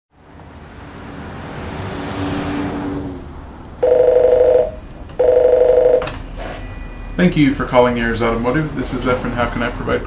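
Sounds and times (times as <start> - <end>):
car passing by: 0.1 - 4.5
telephone ringing: 3.8 - 7.2.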